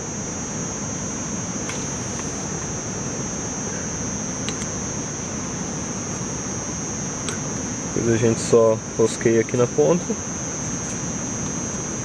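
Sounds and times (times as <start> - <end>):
high-pitched insect drone: 0.0 - 12.0
background hiss: 1.6 - 6.5.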